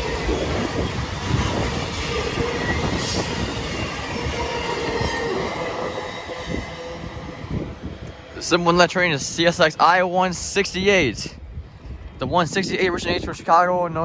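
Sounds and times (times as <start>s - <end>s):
wheels squealing: 0.0s - 8.5s
freight train wheels rumbling: 0.0s - 14.0s.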